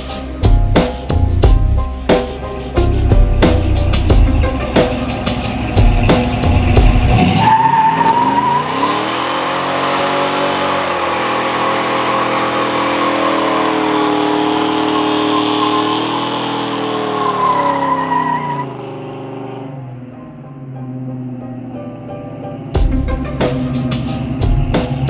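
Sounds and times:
car engine revving high: 2.7 - 20.2
tyres squealing on asphalt: 4.4 - 19.5.

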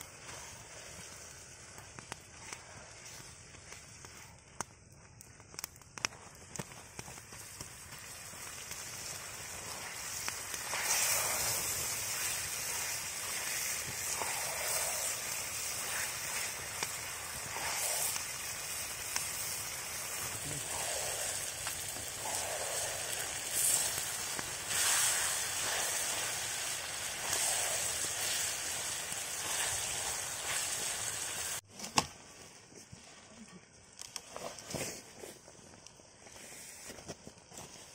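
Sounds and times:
wood fire popping and crackling: 0.0 - 37.9
food sizzling in a wok: 7.3 - 31.6.

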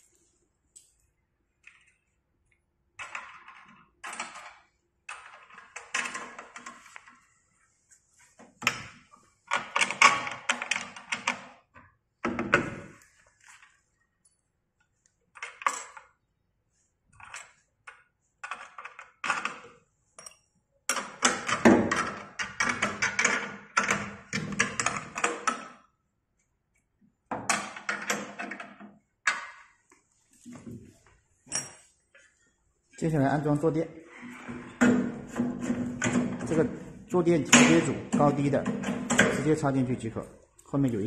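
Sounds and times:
metal bolts and nuts clinking: 15.3 - 16.2, 17.1 - 25.8, 31.4 - 32.0, 34.4 - 41.0.

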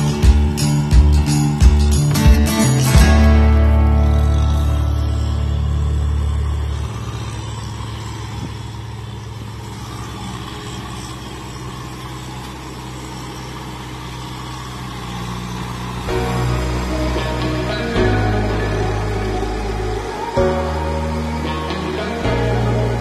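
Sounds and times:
background music: 0.0 - 7.6, 15.8 - 23.0
tractor diesel engine chugging: 0.0 - 23.0.

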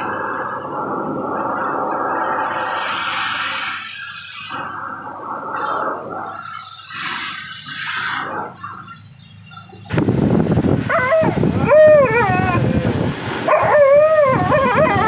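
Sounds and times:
blow dryer rushing: 0.0 - 5.8, 9.9 - 15.0
puppy howling: 10.9 - 15.0.

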